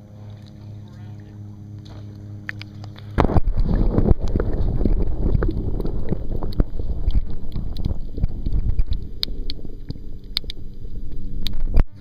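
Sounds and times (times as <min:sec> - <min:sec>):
muffled underwater water noise: 0:00.0 - 0:12.0
sharp underwater clicks: 0:01.8 - 0:12.0.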